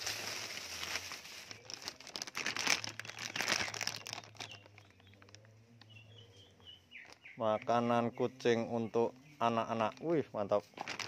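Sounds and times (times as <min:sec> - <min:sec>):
plastic crinkling: 0:00.0 - 0:06.0, 0:06.9 - 0:07.4, 0:09.7 - 0:11.0.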